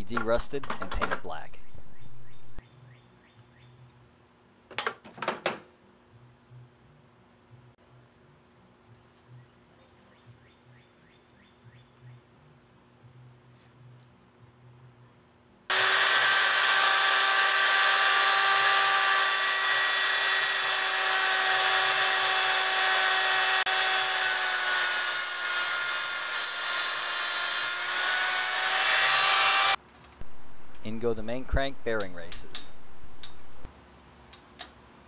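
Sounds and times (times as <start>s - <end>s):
angle grinder grinding steel: 15.7s - 29.8s.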